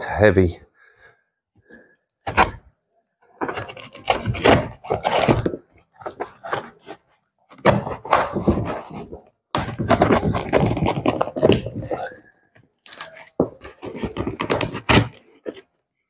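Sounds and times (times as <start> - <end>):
cardboard tearing: 3.4 - 12.2, 12.9 - 15.7.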